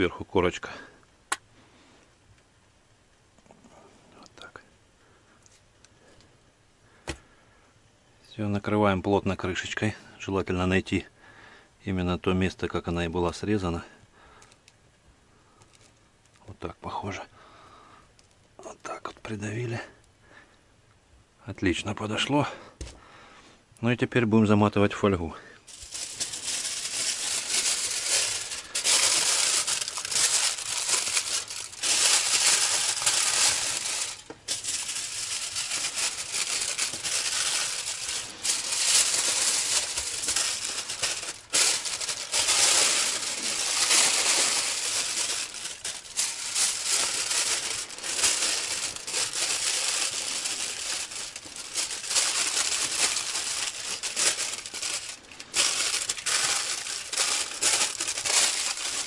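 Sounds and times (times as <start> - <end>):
aluminium foil crinkling: 25.6 - 59.0.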